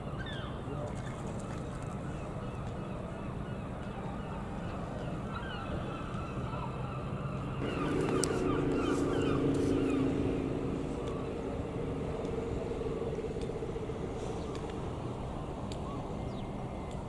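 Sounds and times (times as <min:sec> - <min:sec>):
engine running: 0:07.4 - 0:15.8.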